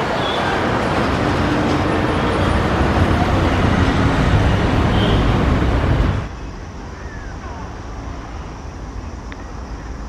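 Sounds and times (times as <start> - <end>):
loud vehicle rumble: 0.0 - 6.3.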